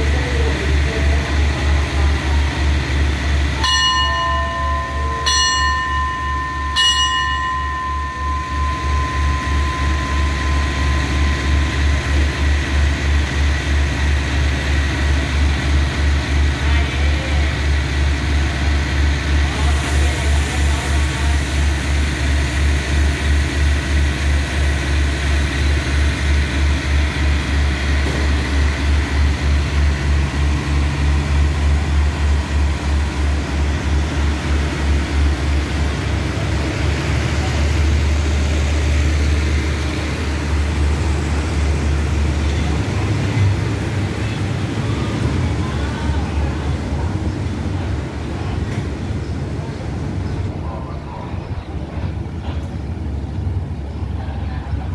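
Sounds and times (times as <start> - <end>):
diesel engine throbbing: 0.0 - 50.7.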